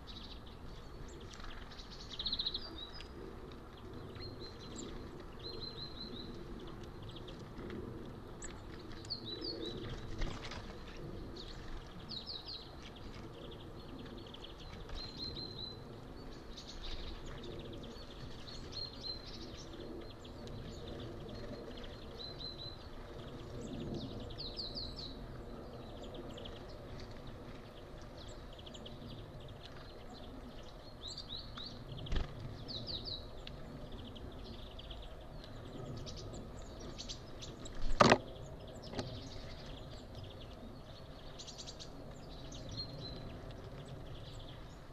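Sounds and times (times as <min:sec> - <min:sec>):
songbirds chirping: 0:00.0 - 0:44.9.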